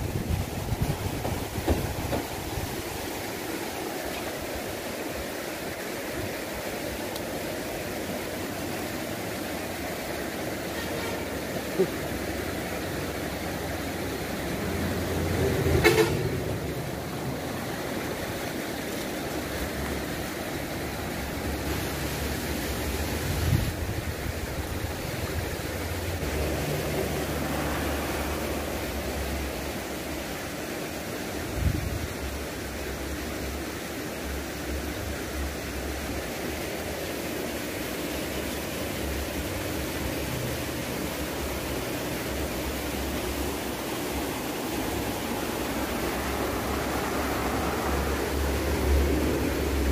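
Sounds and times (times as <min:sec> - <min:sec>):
wind on microphone: 0:00.0 - 0:02.8, 0:23.1 - 0:25.5
river water flowing over concrete: 0:00.0 - 0:49.9.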